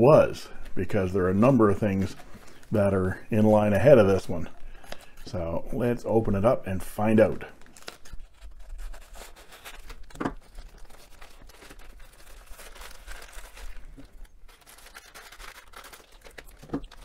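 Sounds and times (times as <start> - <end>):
plastic bag crinkling: 7.2 - 17.0
scissors cutting plastic: 7.8 - 17.0.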